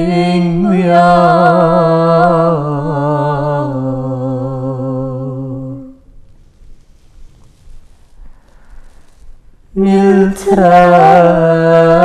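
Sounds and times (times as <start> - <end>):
man and woman singing: 0.0 - 6.0, 9.8 - 12.0.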